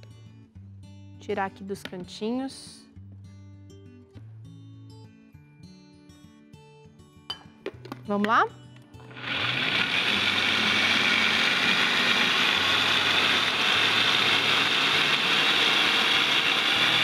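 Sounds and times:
blender churning thick batter: 0:09.0 - 0:17.0.

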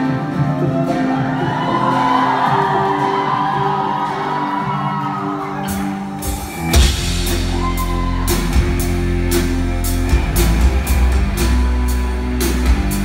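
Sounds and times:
live rock band playing: 0:00.0 - 0:13.0
steady drum beat: 0:05.7 - 0:13.0.

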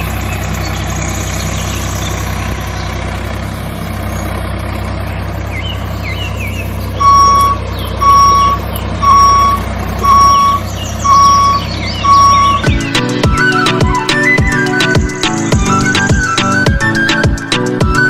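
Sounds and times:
bird chirps: 0:00.0 - 0:18.0
tractor engine hum: 0:00.0 - 0:18.0
reversing alarm beeping: 0:06.9 - 0:16.8.

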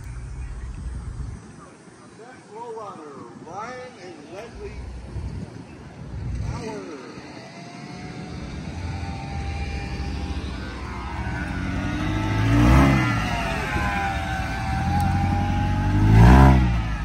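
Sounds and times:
car engine revving: 0:04.6 - 0:17.0.

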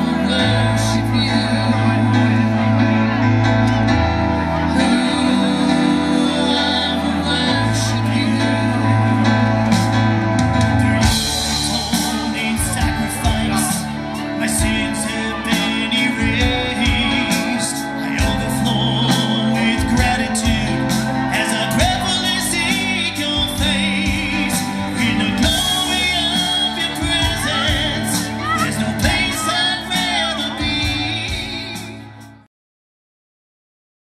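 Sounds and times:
live band with singing: 0:00.0 - 0:32.5
regular drum hits: 0:09.3 - 0:32.3.

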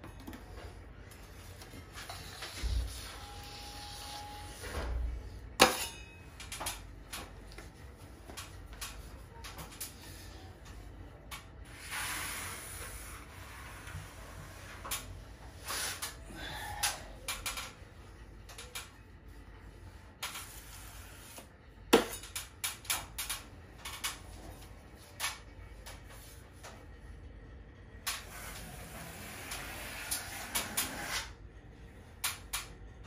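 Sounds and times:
drywall blade scraping: 0:28.4 - 0:31.4.

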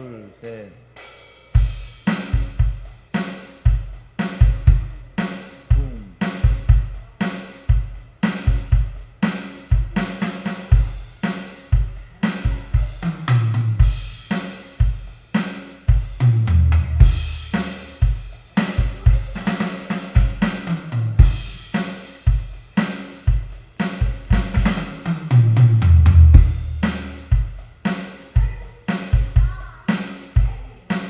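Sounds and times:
electronic drum kit beat: 0:00.4 - 0:31.0
tom fills: 0:04.4 - 0:06.9.

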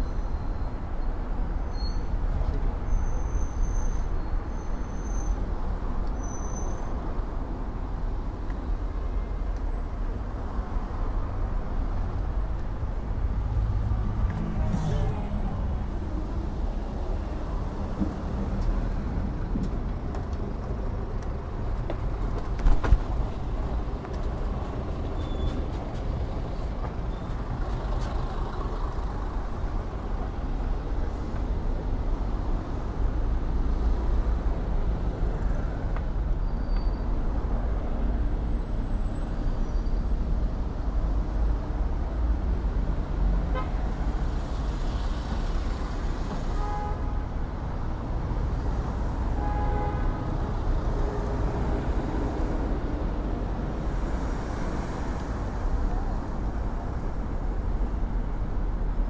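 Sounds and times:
road traffic: 0:00.0 - 0:59.0
vehicle horn: 0:46.6 - 0:47.2, 0:49.4 - 0:50.2.

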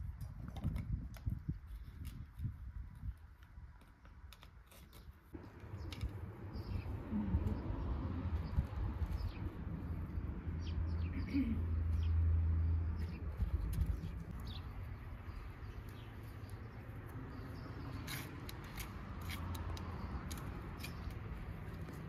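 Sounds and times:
hands working garden soil: 0:00.0 - 0:10.3, 0:12.9 - 0:22.0
birds chirping: 0:04.9 - 0:18.8.

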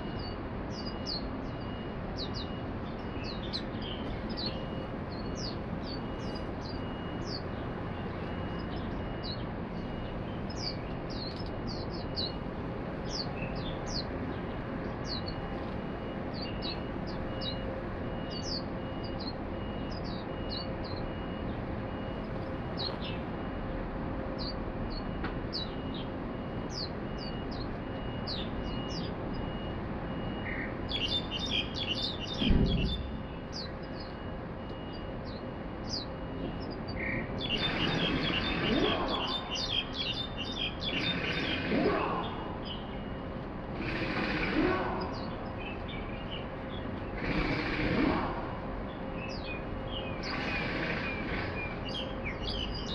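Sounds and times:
birds chirping: 0:00.0 - 0:23.6, 0:24.3 - 0:52.9
low background noise: 0:00.0 - 0:52.9
thump: 0:32.4 - 0:33.1.

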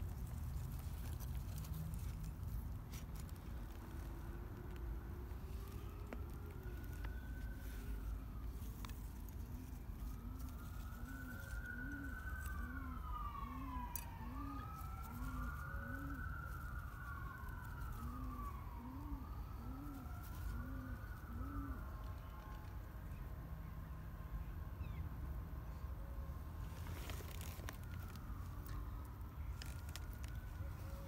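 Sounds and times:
siren wailing: 0:00.2 - 0:23.0, 0:26.7 - 0:31.0
dove cooing: 0:03.2 - 0:22.5.

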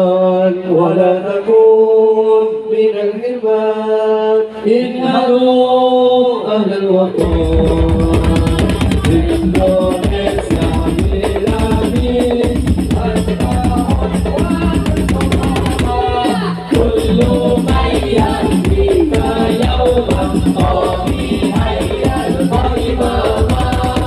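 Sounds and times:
men singing unaccompanied: 0:00.0 - 0:24.0
bass drum: 0:07.2 - 0:24.0
darbuka: 0:07.2 - 0:24.0
frame drums: 0:07.2 - 0:24.0.

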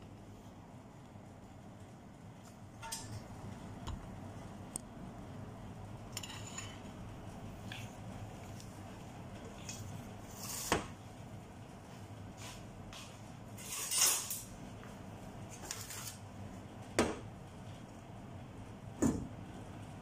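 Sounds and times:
sharp knocks in kitchen: 0:17.0 - 0:17.3, 0:19.0 - 0:19.3.

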